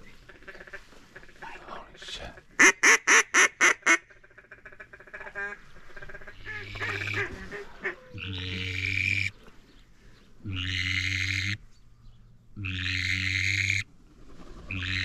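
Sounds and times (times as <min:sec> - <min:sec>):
duck call notes: 0:02.6 - 0:04.0.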